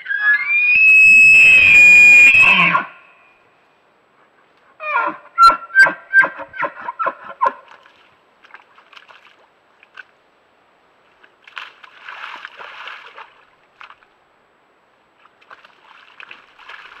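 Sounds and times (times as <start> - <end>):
elk splashing in mud: 11.2 - 14.1, 15.2 - 17.0.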